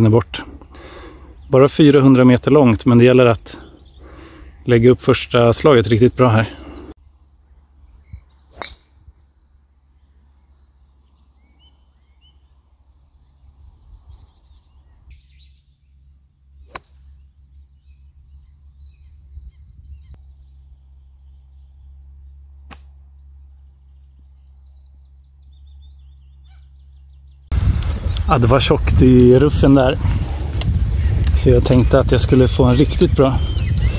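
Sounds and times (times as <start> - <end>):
small birds chirping: 0.0 - 33.9
low steady rumble: 6.9 - 33.9
golf club striking ball: 8.5 - 9.0, 16.6 - 17.2, 22.6 - 23.1.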